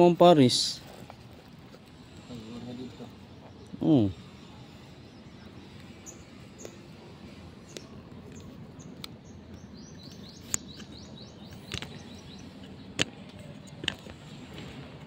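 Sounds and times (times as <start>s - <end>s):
steady background noise: 0.0s - 15.0s
small bird chirping: 2.3s - 14.0s.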